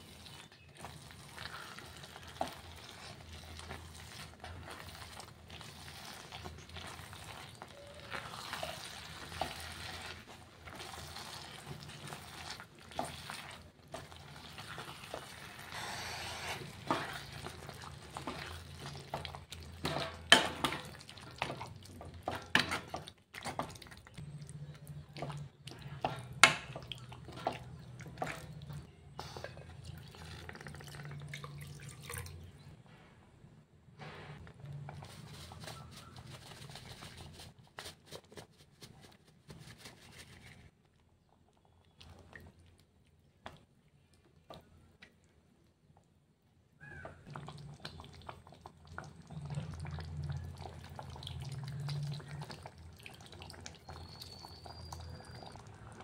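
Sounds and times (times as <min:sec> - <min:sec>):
utensil mashing wet vegetables: 0:00.0 - 0:30.8.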